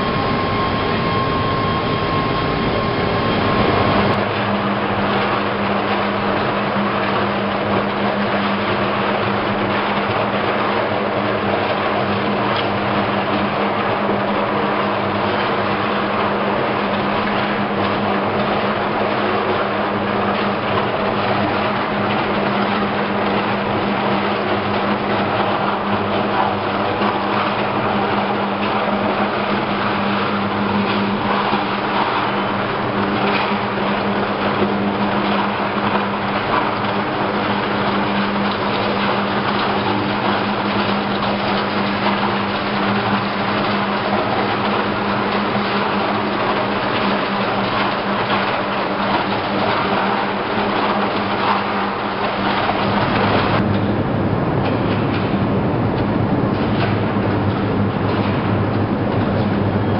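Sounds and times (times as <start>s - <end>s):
strong low hum: 0.0s - 4.2s.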